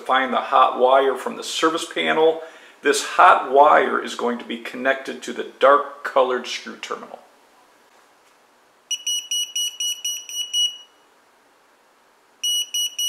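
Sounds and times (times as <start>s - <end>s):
voltage tester beeping rapidly: 8.9s - 11.0s, 12.4s - 13.0s.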